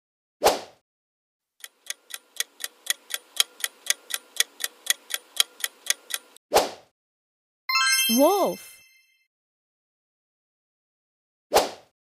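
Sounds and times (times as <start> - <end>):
clock ticking: 1.6 - 6.4.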